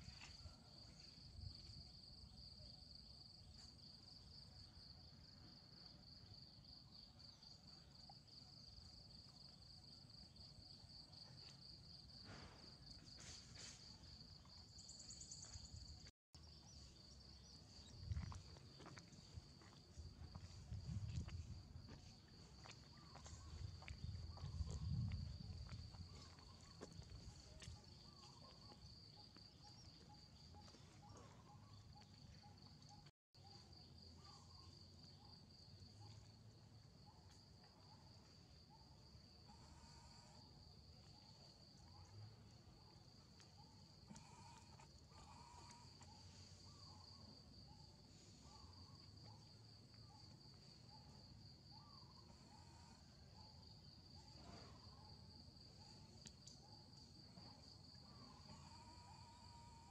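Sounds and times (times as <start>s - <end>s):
high-pitched insect trill: 55.8s - 59.9s.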